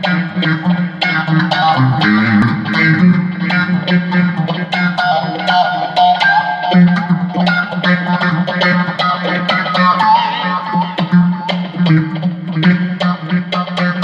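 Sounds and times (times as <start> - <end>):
bass line: 0.0 - 5.4
electric guitar: 0.0 - 14.0.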